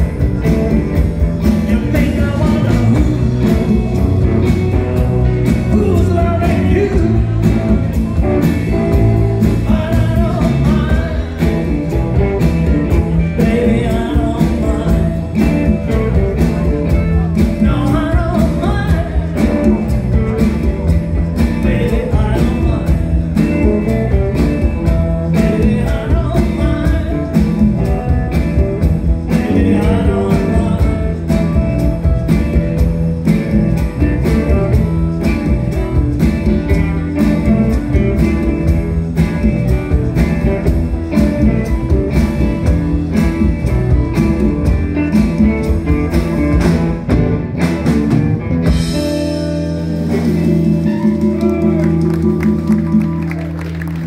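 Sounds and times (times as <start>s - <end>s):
person singing: 0.0s - 32.6s, 49.7s - 53.6s
bass: 0.0s - 54.0s
drums with steady beat: 0.0s - 54.0s
electric guitars: 0.0s - 54.0s.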